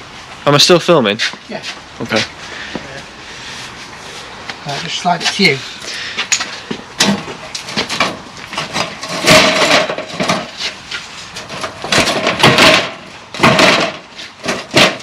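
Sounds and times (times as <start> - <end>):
sheet metal scraping and clanking: 4.7 - 15.0.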